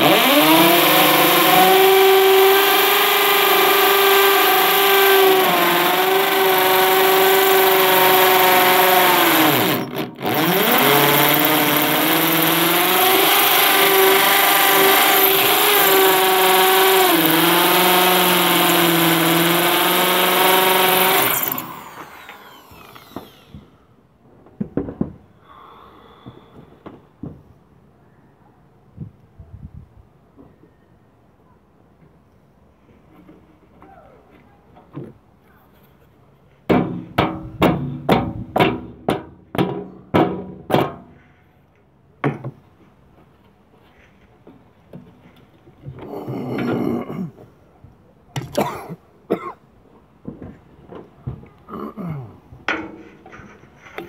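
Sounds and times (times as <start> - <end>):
electric drill whining: 0.0 - 23.7.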